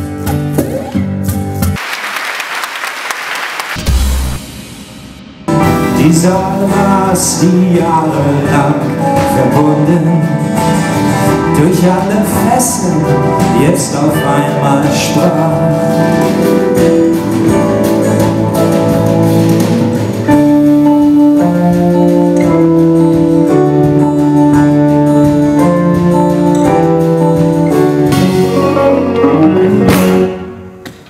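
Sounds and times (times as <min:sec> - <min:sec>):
acoustic guitars: 0:00.0 - 0:01.8, 0:05.5 - 0:30.9
sustained keyboard chords: 0:05.5 - 0:30.8.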